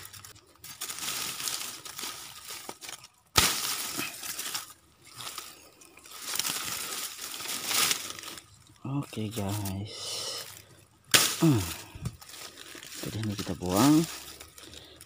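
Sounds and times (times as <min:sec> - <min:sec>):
dry leaves rustling and crackling: 0:00.0 - 0:15.0
sharp crack: 0:02.6 - 0:04.8, 0:11.1 - 0:12.3.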